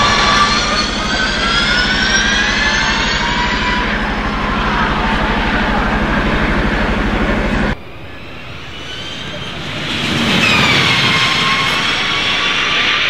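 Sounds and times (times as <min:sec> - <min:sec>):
electric drivetrain whining: 0:00.0 - 0:13.0
steady low rumble: 0:04.1 - 0:13.0.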